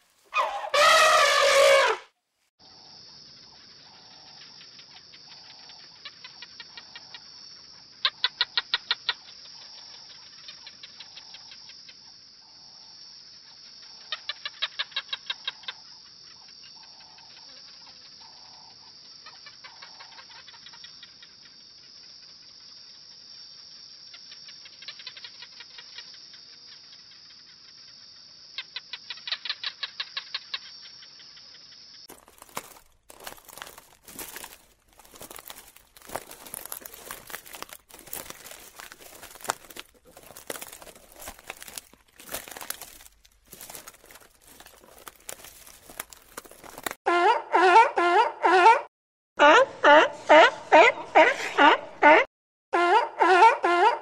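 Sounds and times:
rapid chattering animal calls: 3.3s - 12.0s, 13.8s - 18.4s, 19.2s - 22.4s, 24.1s - 46.9s.

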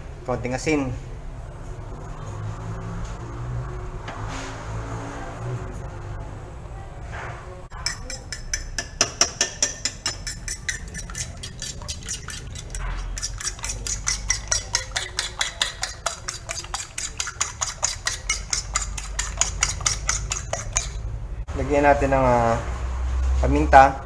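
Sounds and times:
fork beating eggs on plate: 7.8s - 21.0s.

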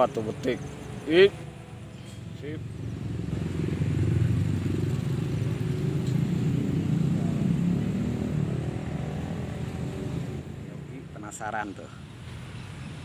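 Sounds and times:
vehicle engine humming: 0.0s - 11.6s.

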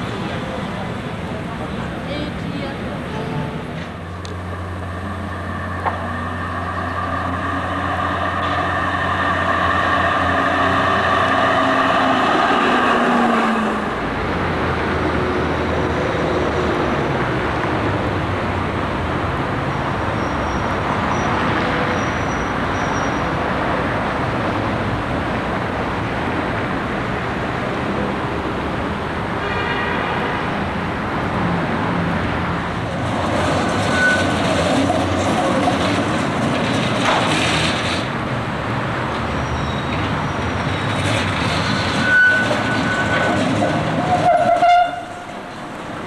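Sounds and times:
tram and street traffic noise: 0.0s - 46.0s
tram rolling and rumbling: 0.0s - 46.0s
steady humming drone: 3.2s - 14.6s
wheel squeals on track: 20.1s - 23.4s, 33.3s - 36.1s, 39.4s - 45.5s.

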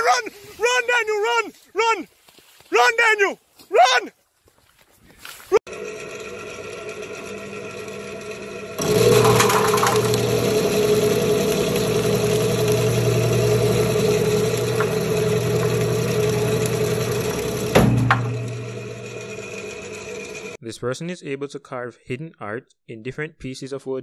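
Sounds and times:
rotary slicing machine humming: 5.7s - 20.6s.

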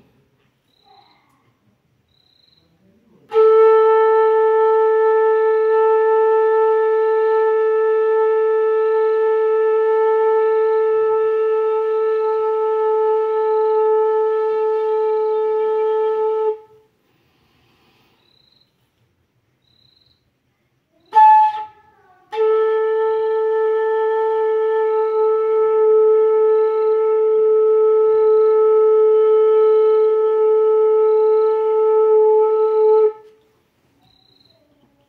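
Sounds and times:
bamboo flute long note: 3.3s - 16.9s, 21.1s - 33.3s.

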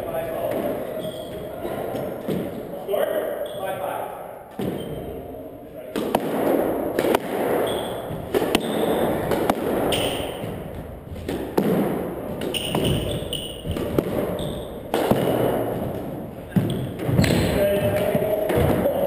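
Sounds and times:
ball hitting walls: 0.4s - 2.7s, 4.5s - 5.2s, 5.9s - 19.0s
sneakers squeaking on hardwood: 0.4s - 2.7s, 4.5s - 5.2s, 7.5s - 19.0s
squash racquet hitting ball: 0.4s - 2.7s, 4.5s - 5.2s, 5.9s - 19.0s.

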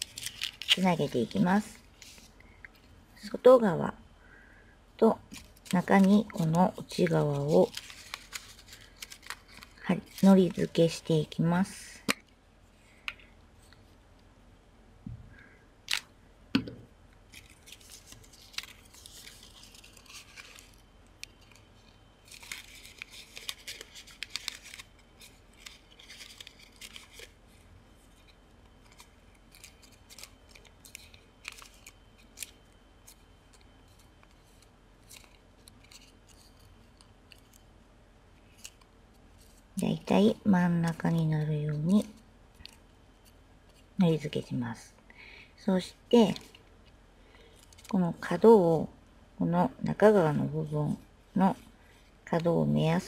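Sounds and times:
paper rustling and rubbing: 0.0s - 2.4s, 5.3s - 10.8s, 17.3s - 37.6s.

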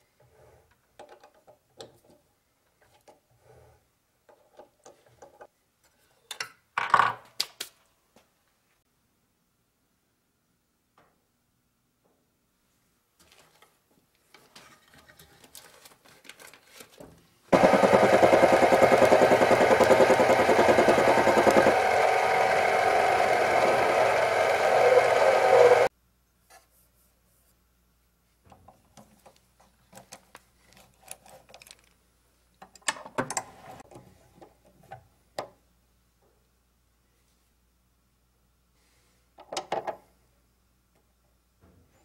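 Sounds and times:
lathe motor and gear whine: 17.6s - 25.9s.

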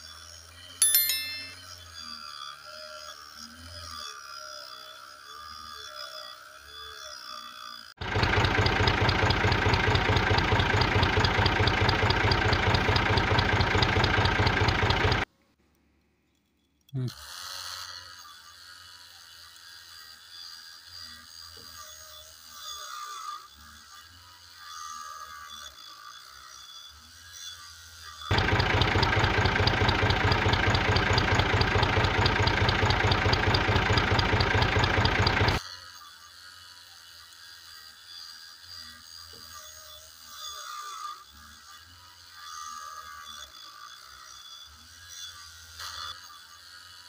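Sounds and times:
motor running with low pulsing: 0.0s - 15.5s, 16.4s - 47.0s
tractor engine idling: 8.0s - 15.2s, 28.3s - 35.6s
light ticking: 28.3s - 35.6s.

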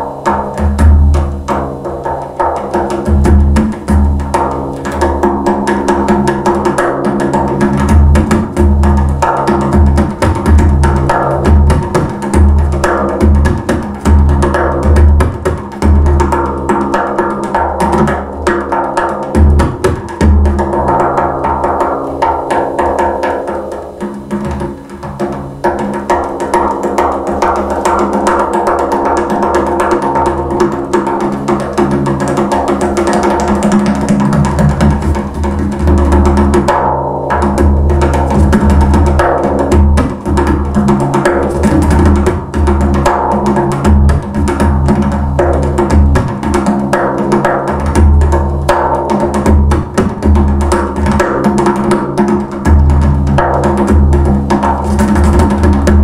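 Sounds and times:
frame drum finger strokes: 30.6s - 56.0s
frame drum bass strokes: 32.9s - 51.3s, 52.4s - 56.0s.

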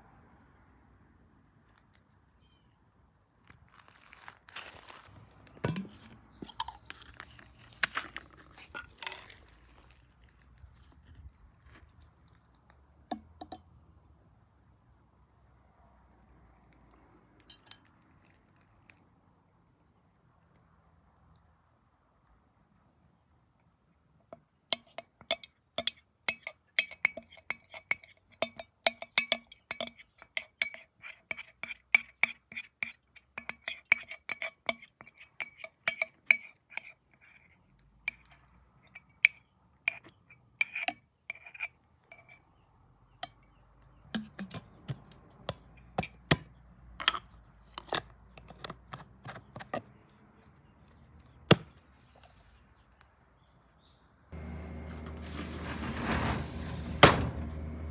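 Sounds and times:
glass jar knocks and handling: 5.5s - 9.3s, 44.2s - 49.8s
metal spoon clinking on glass: 17.5s - 17.9s, 24.7s - 37.4s, 38.1s - 42.4s, 44.2s - 44.7s.

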